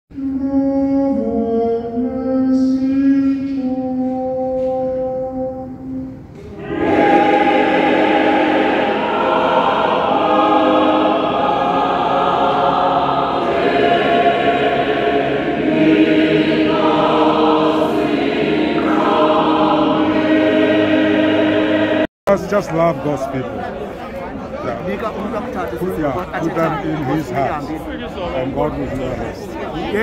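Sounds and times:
choir singing: 0.2s - 22.1s.

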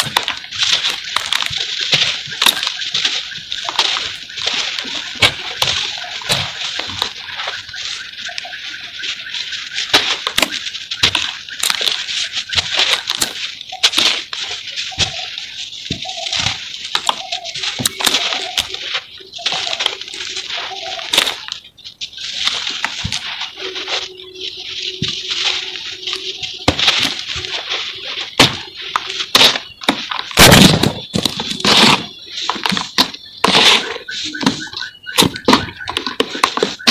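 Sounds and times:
cement crackling and snapping: 0.0s - 24.2s, 25.0s - 36.9s
chunks thudding: 25.0s - 36.9s.

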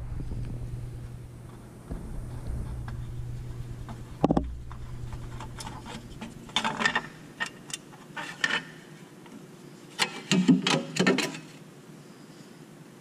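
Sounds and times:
metal cover plate clattering: 5.2s - 8.7s.

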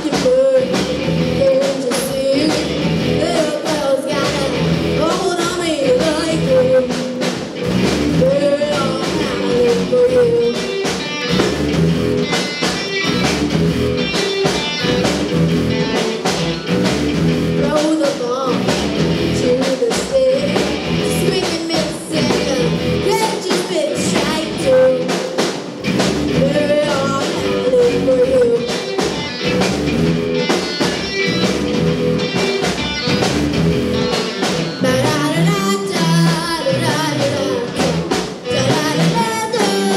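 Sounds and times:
woman singing lead: 0.0s - 11.4s, 17.5s - 25.6s, 26.3s - 29.4s, 34.0s - 39.9s
drum kit steady beat: 0.0s - 39.9s
electric guitars: 0.0s - 39.9s.

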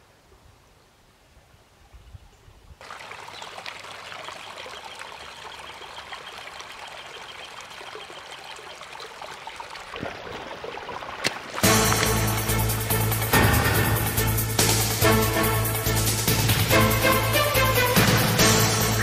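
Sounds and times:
creek trickling over stones: 2.8s - 15.1s
loud music: 11.6s - 19.0s.

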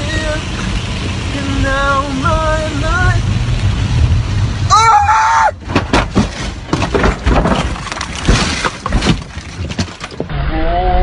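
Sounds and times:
vehicle crash impacts: 4.0s - 10.3s
glass shattering: 6.0s - 10.2s.

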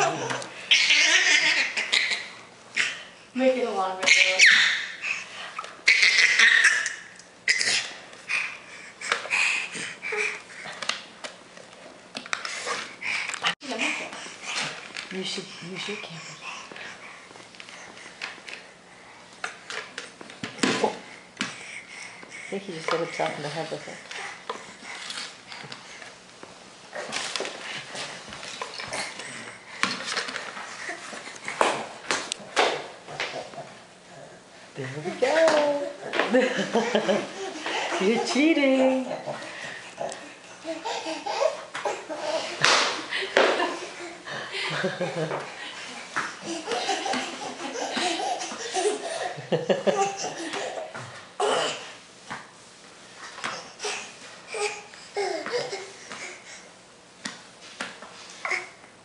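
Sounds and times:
baby giggling: 0.0s - 2.9s, 5.8s - 7.9s, 36.1s - 42.6s, 46.4s - 51.7s.

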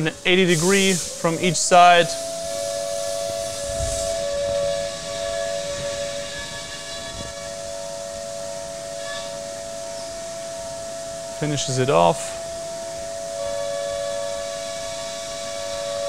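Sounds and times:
hiss of coolant spray: 0.0s - 4.3s
milling spindle high-pitched whine: 0.0s - 16.0s.

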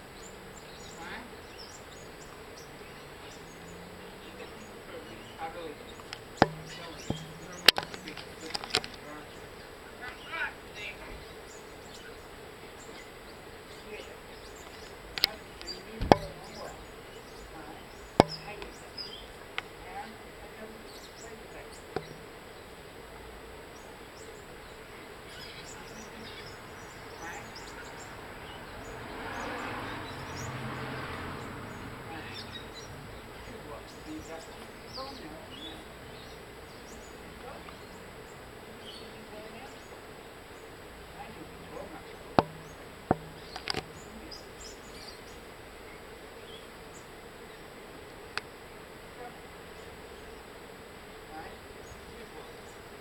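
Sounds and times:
faint outdoor background noise: 0.0s - 53.0s
sharp clicks: 6.0s - 9.0s.

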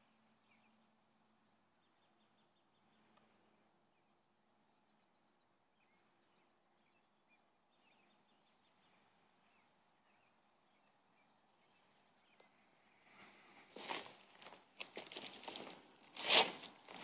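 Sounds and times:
faint bird chirps: 0.0s - 13.6s.

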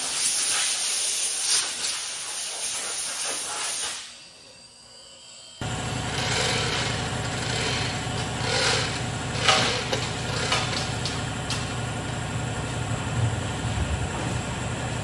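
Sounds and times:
machine motor humming: 4.5s - 15.0s.

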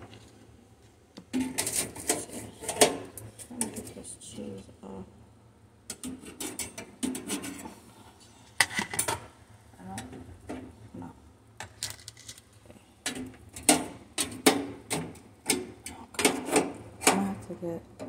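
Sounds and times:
kitchenware scraping and clinking: 1.3s - 4.0s, 5.9s - 7.8s, 8.4s - 9.3s, 13.1s - 17.3s.

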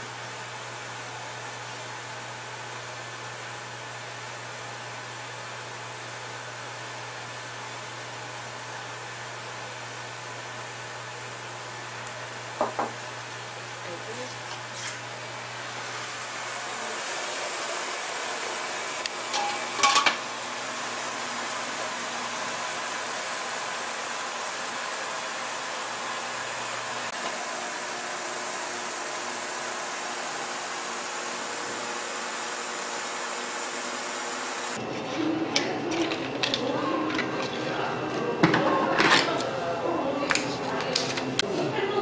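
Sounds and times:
pot clattering: 19.3s - 20.2s.

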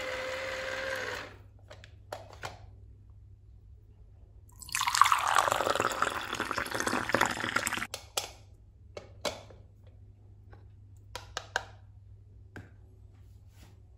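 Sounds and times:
juice pouring into plastic cup: 4.6s - 7.9s.

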